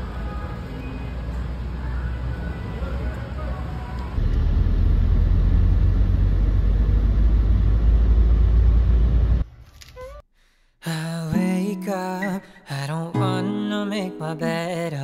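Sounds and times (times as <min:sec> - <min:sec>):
van engine rumble and road noise: 0:00.0 - 0:10.2
music with singing: 0:10.9 - 0:15.0.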